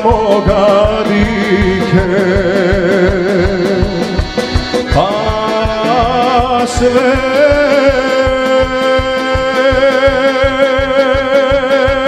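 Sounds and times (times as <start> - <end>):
folk band playing: 0.0 - 12.0
man singing with vibrato: 0.0 - 12.0
steady drum beat: 0.0 - 12.0.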